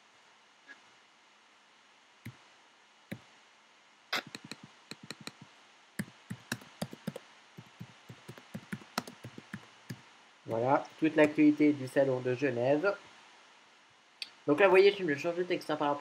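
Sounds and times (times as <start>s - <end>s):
computer keyboard typing: 4.2s - 5.4s, 6.0s - 9.7s.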